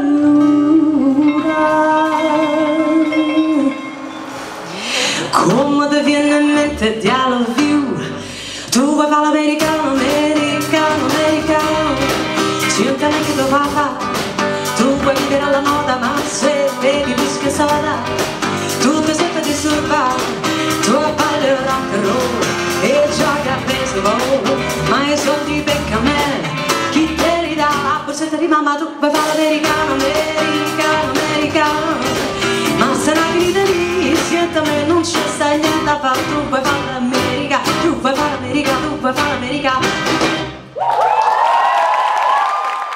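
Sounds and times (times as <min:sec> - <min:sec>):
woman singing: 0:00.0 - 0:04.0, 0:05.2 - 0:40.5
bass: 0:00.0 - 0:41.6
drums: 0:00.0 - 0:42.8
strummed acoustic guitar: 0:29.2 - 0:39.0.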